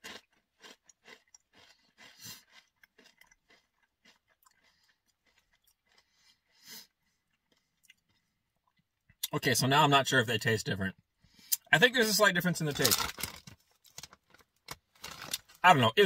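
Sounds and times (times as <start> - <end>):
chewing crunchy chips: 0.0 - 9.0, 12.7 - 15.7.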